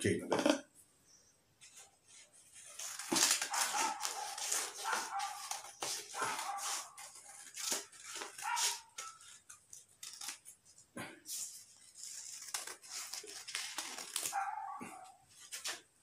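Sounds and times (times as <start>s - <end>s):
paper rustling: 1.6s - 16.0s
scissors snipping paper: 2.7s - 10.6s, 11.8s - 14.6s.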